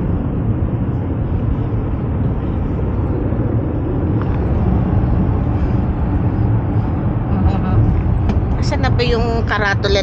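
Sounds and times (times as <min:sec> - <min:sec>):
car engine and tyre rumble: 0:00.0 - 0:10.0.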